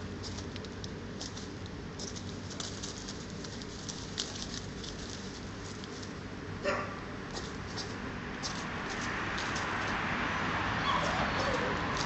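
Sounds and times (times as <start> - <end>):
rustling in dry leaves and twigs: 0.0 - 6.6, 7.2 - 12.0.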